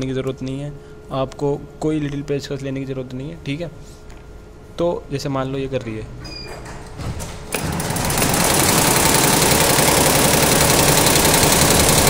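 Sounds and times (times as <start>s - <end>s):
embroidery machine stitching: 7.5s - 12.0s.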